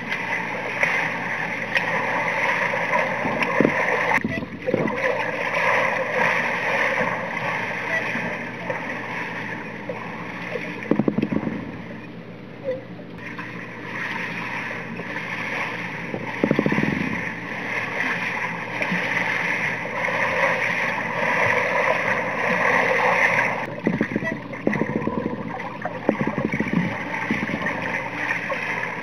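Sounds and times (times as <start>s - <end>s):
muffled underwater water rush: 0.0s - 12.4s, 13.2s - 29.0s
rapid low crackling: 13.2s - 29.0s.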